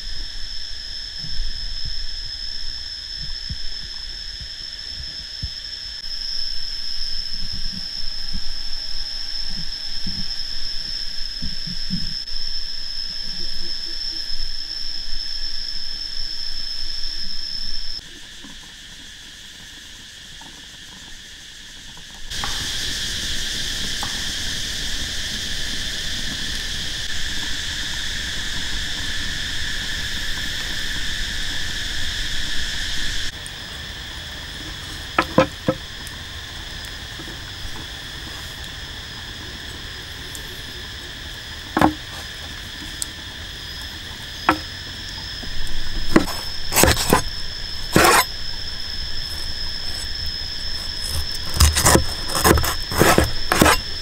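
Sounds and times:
forest insects droning: 0.0 - 54.0
sharp knocks: 35.2 - 35.8, 41.8 - 42.1.

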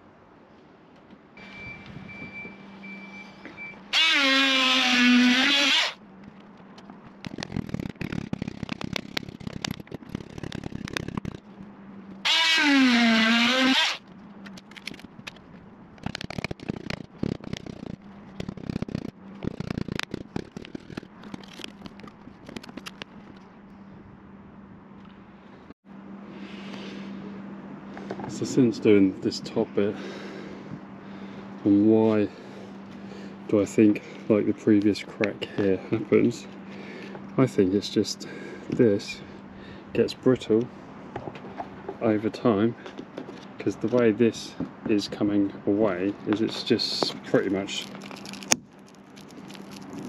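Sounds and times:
power hammer chiselling: 3.9 - 6.0, 12.2 - 14.0
brittle plastic cracking and snapping: 14.4 - 15.4, 16.0 - 23.1, 47.5 - 50.0.

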